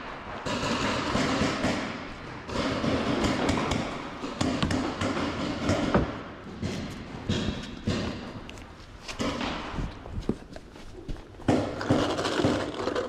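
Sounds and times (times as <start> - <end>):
footsteps on concrete: 6.7 - 11.8.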